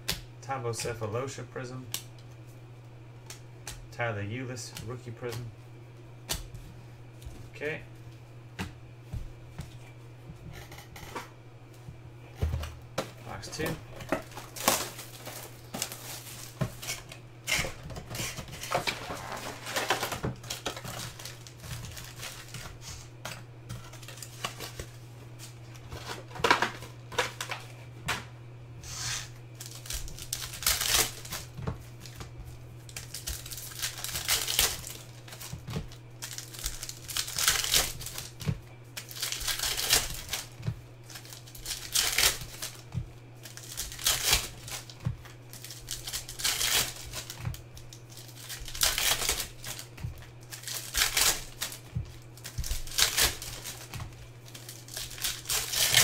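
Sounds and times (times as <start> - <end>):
steady low hum: 0.0 - 56.0
foil wrappers crinkling and tearing: 13.2 - 27.7, 29.0 - 56.0.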